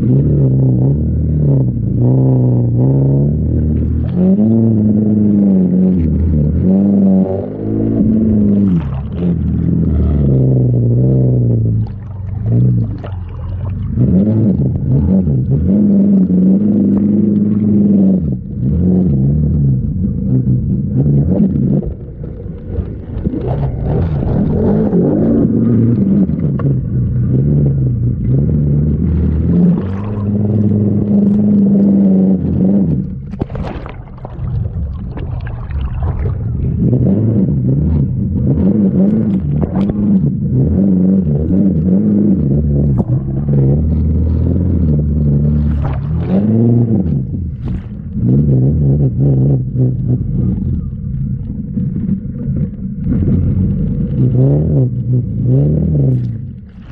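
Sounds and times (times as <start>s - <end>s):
water splashing: 0.0s - 56.9s
atv engine revving: 36.7s - 51.9s.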